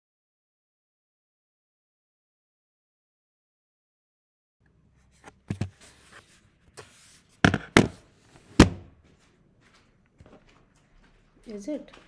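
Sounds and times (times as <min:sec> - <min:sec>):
handling knocks and bumps: 0:05.4 - 0:05.8.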